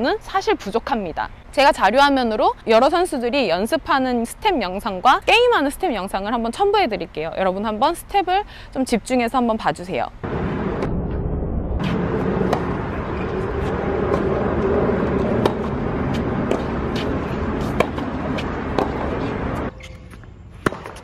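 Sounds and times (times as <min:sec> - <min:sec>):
steady background noise: 0:00.0 - 0:21.0
tennis balls being struck: 0:12.4 - 0:21.0.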